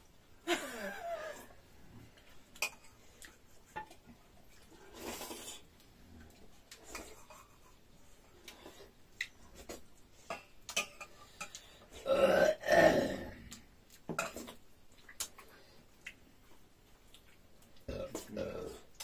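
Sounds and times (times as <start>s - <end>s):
loud burp: 12.0s - 13.5s, 17.9s - 18.8s
eating clicks and smacks: 13.5s - 16.3s.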